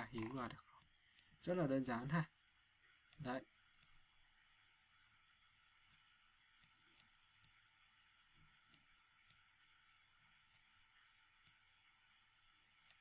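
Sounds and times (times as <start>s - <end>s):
computer mouse clicks: 0.0s - 2.1s, 3.1s - 4.0s, 5.8s - 7.6s, 8.6s - 9.5s, 10.4s - 10.8s, 11.4s - 11.7s, 12.7s - 13.0s.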